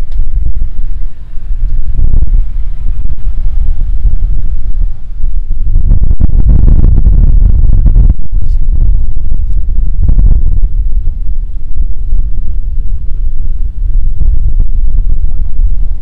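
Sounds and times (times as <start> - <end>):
car exhaust deep rumble: 0.0 - 16.0.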